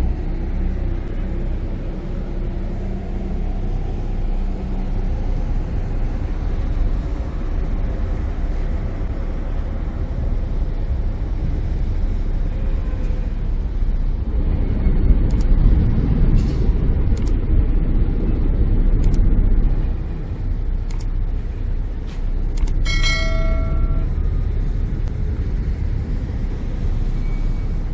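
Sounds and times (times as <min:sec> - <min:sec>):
ferry engine rumbling: 0:00.0 - 0:27.9
short ringing tone: 0:22.8 - 0:24.4.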